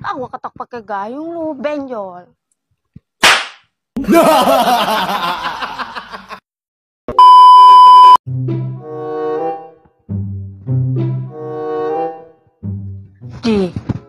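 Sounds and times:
loud steady test tone beep: 7.1 - 8.2.

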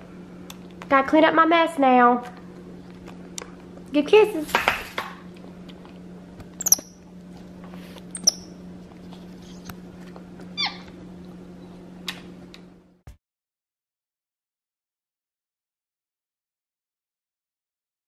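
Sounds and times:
low steady hum: 0.0 - 13.0
monkey squeaking: 6.6 - 7.0, 8.1 - 8.6, 10.6 - 10.9.

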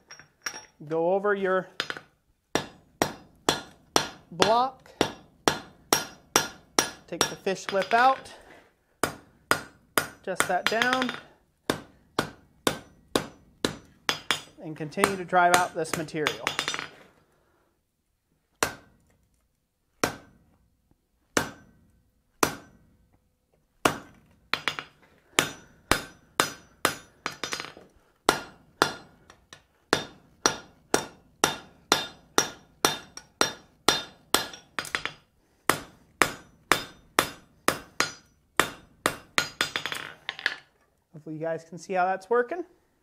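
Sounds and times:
hammer striking steel on an anvil: 2.6 - 8.4, 9.0 - 16.9, 20.0 - 20.4, 21.4 - 21.8, 22.4 - 22.8, 23.8 - 40.1.

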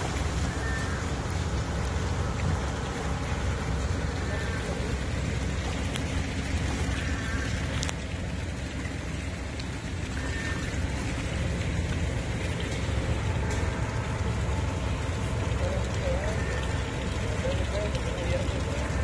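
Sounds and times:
steady rain on flooded street: 0.0 - 19.0.

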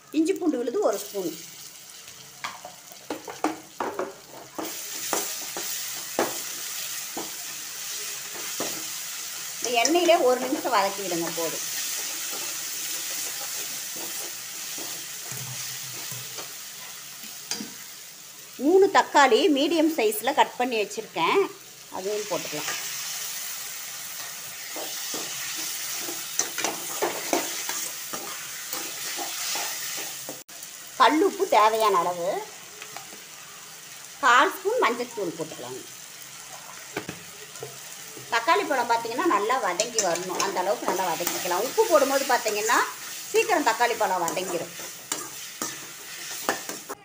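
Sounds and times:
paste sizzling in hot oil: 0.0 - 47.0
metal spoon scraping and clinking pan: 24.2 - 30.4, 44.3 - 47.0.

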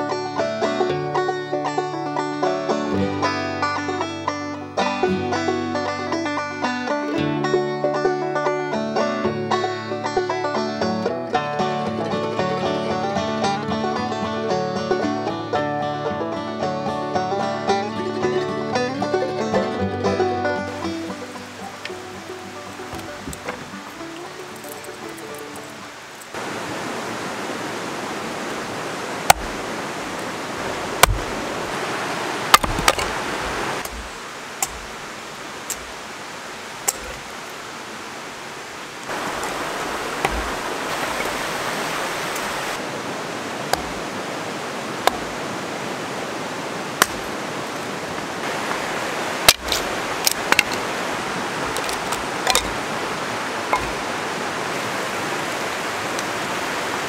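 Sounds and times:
creek flowing over stones: 0.0 - 57.0
sharp knocks and clicks: 31.0 - 31.3.

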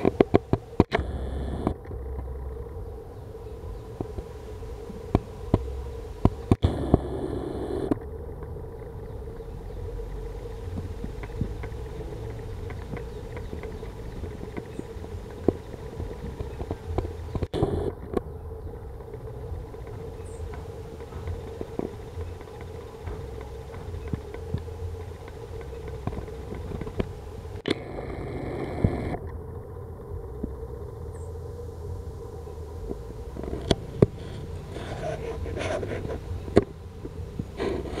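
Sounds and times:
sharp clicks: 0.0 - 2.8, 10.1 - 18.3
constant hum: 0.0 - 38.0
low background rumble: 0.0 - 38.0.

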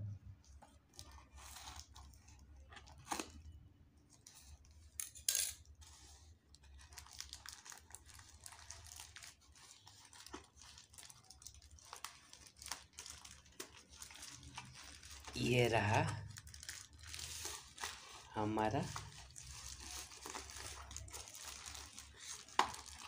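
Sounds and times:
plastic crinkling and tearing: 0.4 - 5.0, 5.6 - 23.0
scissors cutting plastic: 18.9 - 23.0.

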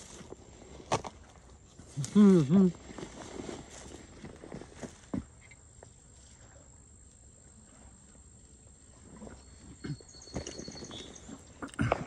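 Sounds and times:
footsteps in grass: 2.7 - 5.3
faint steady high tone: 5.5 - 11.8.

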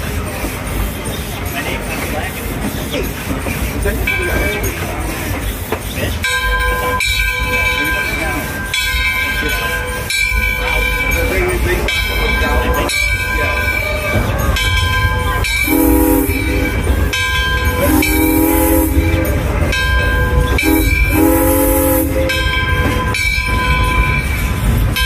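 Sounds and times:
train wheels rumbling on rails: 0.0 - 25.0
steam whistle blasts: 13.8 - 19.5, 20.2 - 22.8.

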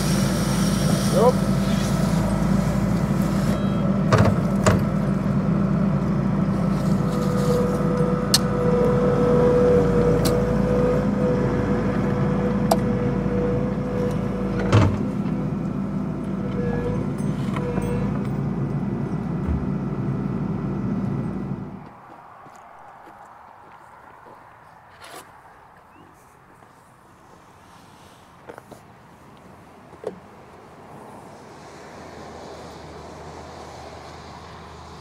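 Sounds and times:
post-driver engine running: 0.0 - 21.8.

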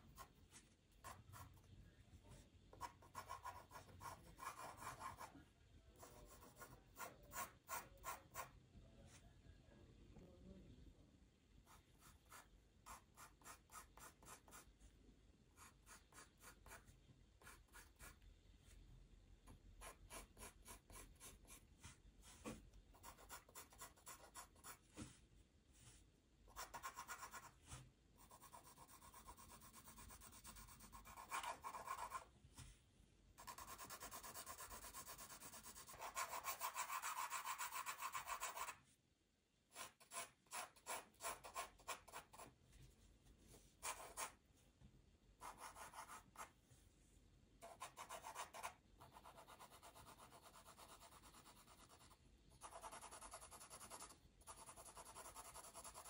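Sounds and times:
pencil scratching on paper: 0.0 - 1.7, 2.7 - 5.4, 6.0 - 8.6, 11.7 - 14.7, 15.6 - 18.2, 19.5 - 25.1, 26.5 - 32.3, 33.4 - 38.8, 39.7 - 42.5, 43.8 - 44.4, 45.4 - 46.5, 47.6 - 56.0
pencil rubbing on paper: 2.7 - 5.3, 11.7 - 14.7, 26.5 - 32.3, 33.4 - 38.8, 39.7 - 42.5, 43.6 - 44.4, 45.4 - 46.5, 47.6 - 56.0.

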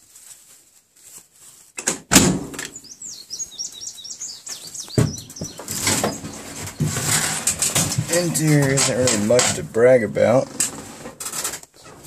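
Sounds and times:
bird chirping descending notes: 2.7 - 7.0
rustling and light clanks: 4.9 - 9.8, 10.4 - 12.0.

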